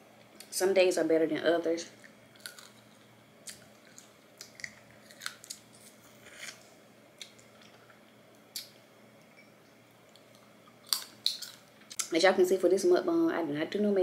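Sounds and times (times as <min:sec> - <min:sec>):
crab shell cracking and chewing: 0:02.0 - 0:06.6, 0:07.2 - 0:08.8, 0:10.0 - 0:12.0.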